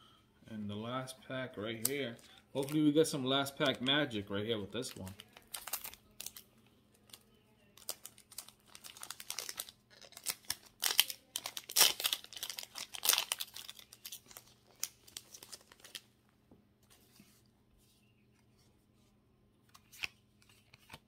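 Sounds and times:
foil pack crinkling and tearing: 4.8s - 6.4s, 7.8s - 16.0s.

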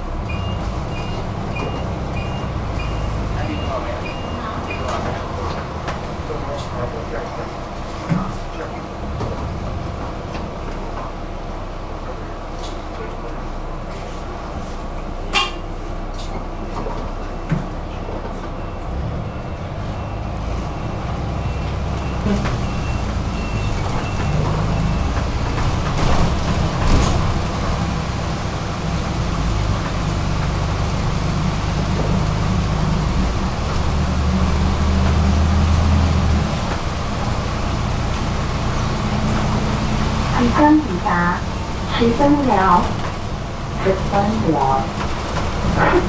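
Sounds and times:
bus engine drone: 0.0s - 46.0s.

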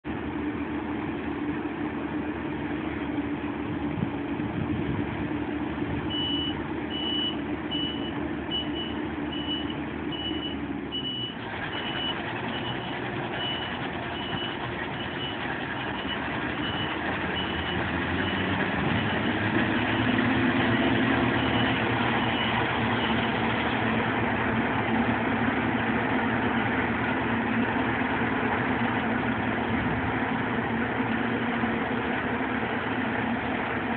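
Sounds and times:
combine harvester engine running: 0.0s - 33.9s
reversing alarm beeping: 6.1s - 15.4s, 16.0s - 23.3s.

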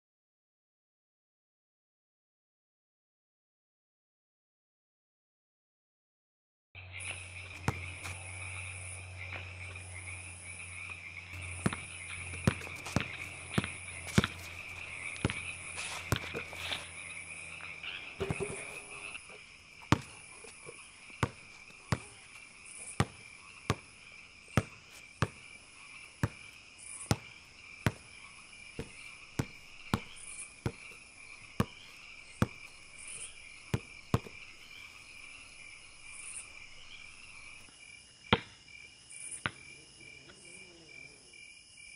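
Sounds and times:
crickets and night insects: 6.8s - 41.9s
basketball bouncing on concrete: 7.4s - 8.4s, 11.3s - 17.1s, 17.8s - 23.9s, 24.5s - 37.7s.

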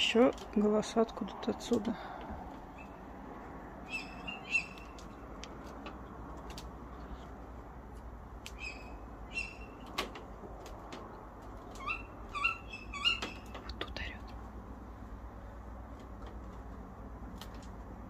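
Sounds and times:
owls calling: 3.8s - 5.2s, 8.5s - 9.9s, 11.7s - 13.7s.

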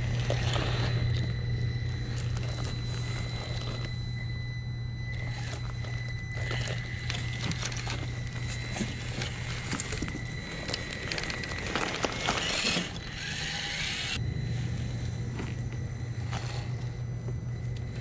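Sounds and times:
motor and gear whine: 0.0s - 18.0s
wood crunching under tyres: 5.0s - 18.0s.

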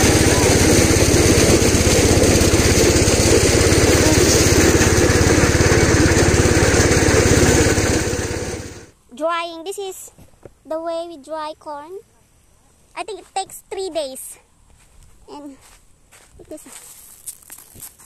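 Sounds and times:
small engine running: 0.0s - 8.9s.

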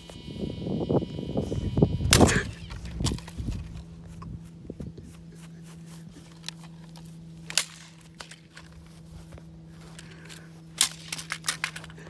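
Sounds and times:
low steady hum: 0.0s - 12.0s
drone hitting the ground: 2.0s - 3.9s
small clicks of parts handled: 2.6s - 3.8s, 6.2s - 8.9s, 9.8s - 12.0s.

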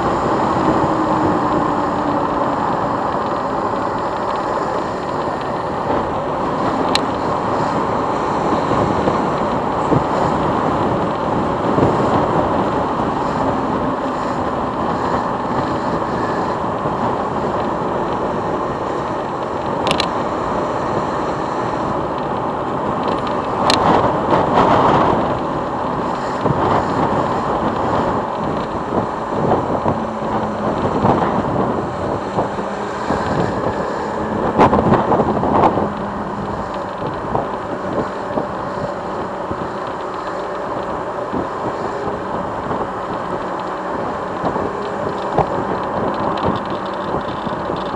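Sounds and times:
wind on microphone: 0.0s - 47.9s
motorcycle engine running: 23.4s - 47.9s.

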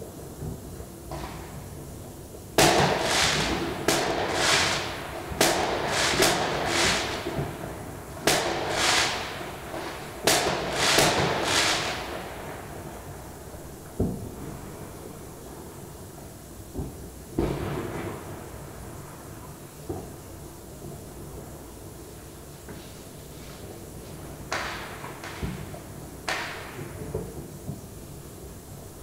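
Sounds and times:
fireworks bangs: 2.6s - 15.2s, 16.2s - 21.7s, 22.7s - 28.0s.

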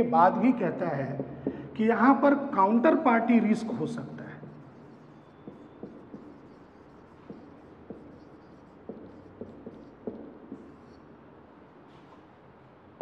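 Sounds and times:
pen tapping on whiteboard: 1.2s - 1.6s, 4.4s - 11.1s.

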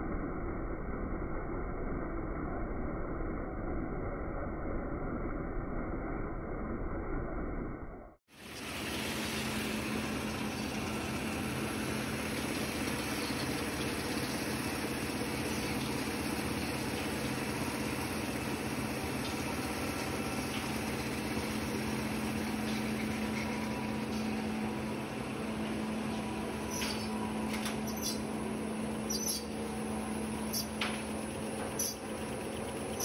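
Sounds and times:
machine hum and whir: 0.0s - 33.0s.

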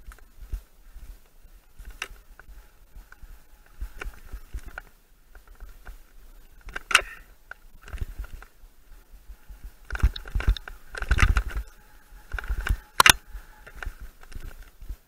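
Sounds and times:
bike knocking and rattling: 0.0s - 15.0s
bike tyres on dirt: 0.0s - 15.0s
sharp cracks: 9.8s - 11.7s, 12.3s - 14.6s.

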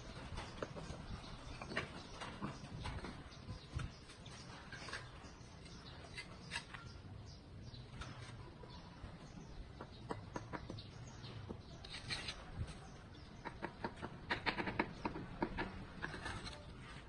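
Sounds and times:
trowel scraping mortar on bricks: 0.5s - 7.0s, 11.7s - 17.0s
trowel tapping bricks: 9.7s - 16.7s.

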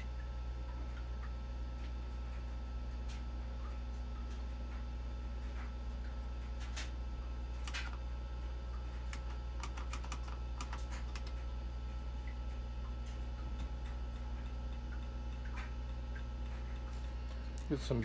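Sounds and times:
computer low hum: 0.0s - 18.0s
keyboard key clicks: 9.1s - 11.3s.

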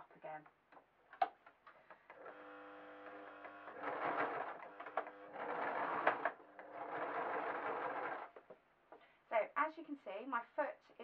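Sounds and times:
sewing machine stitching: 2.1s - 8.4s.

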